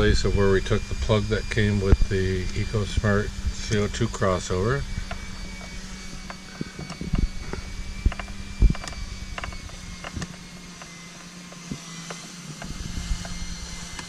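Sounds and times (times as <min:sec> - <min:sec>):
steady low hum: 0:00.0 - 0:14.0
plug clicks and knocks: 0:08.0 - 0:11.0.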